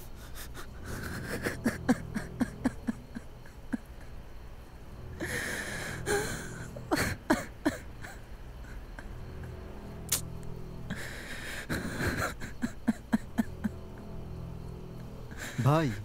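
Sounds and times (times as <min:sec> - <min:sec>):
man breathing hard: 0:05.2 - 0:06.5, 0:10.9 - 0:12.2.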